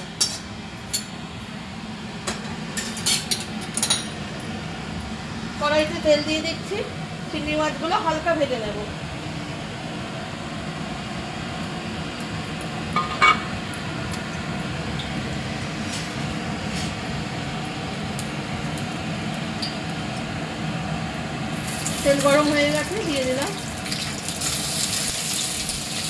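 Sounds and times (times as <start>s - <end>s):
low kitchen hum: 0.0s - 26.0s.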